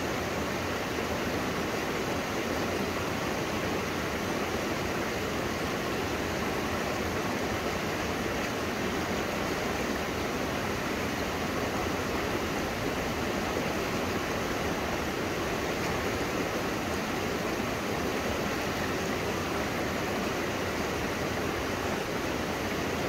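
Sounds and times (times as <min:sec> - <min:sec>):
river rushing over boulders: 0:00.0 - 0:23.0.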